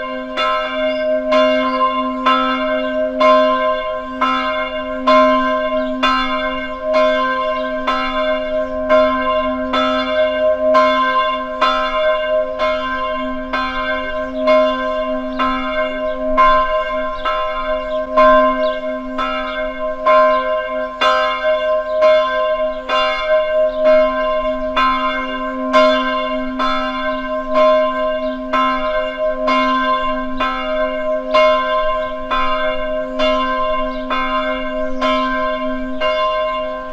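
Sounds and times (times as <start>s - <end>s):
church bell ringing: 0.0s - 36.9s.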